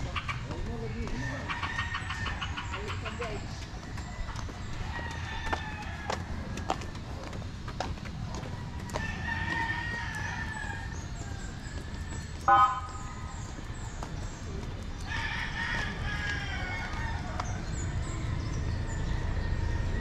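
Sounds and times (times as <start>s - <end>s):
low rumble of surroundings: 0.0s - 20.0s
rooster crowing: 4.8s - 6.9s, 8.3s - 12.8s, 15.0s - 17.7s.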